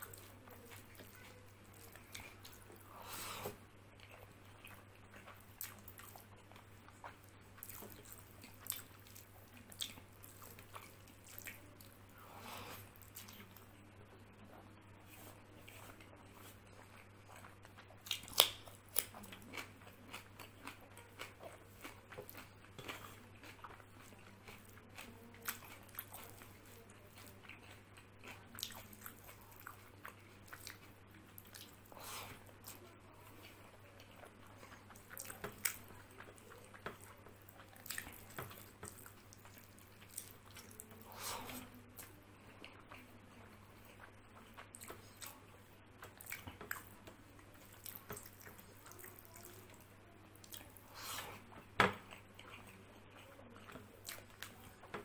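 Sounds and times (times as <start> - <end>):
person chewing with wet smacks: 0.0 - 55.0.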